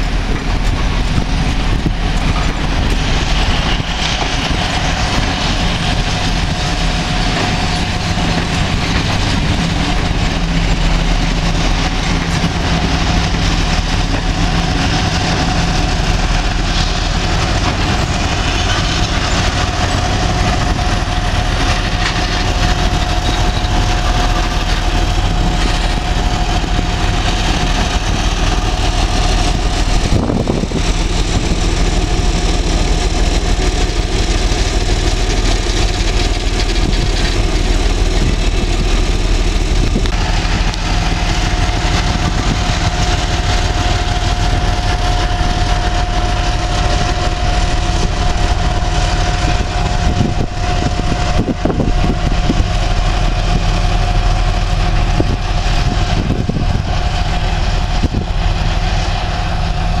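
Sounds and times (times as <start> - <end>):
diesel locomotive droning: 0.0 - 60.0
steady high whine: 0.0 - 60.0.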